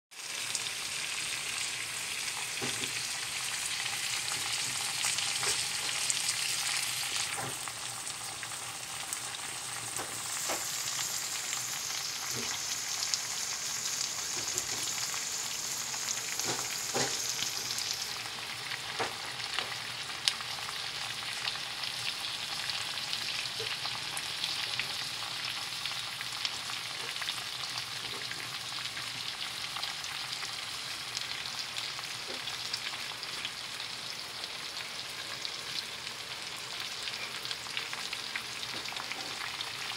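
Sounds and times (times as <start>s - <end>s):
food sizzling in a frying pan: 0.1s - 39.9s
small pops of frying: 2.2s - 21.6s, 31.1s - 33.5s, 36.6s - 39.9s.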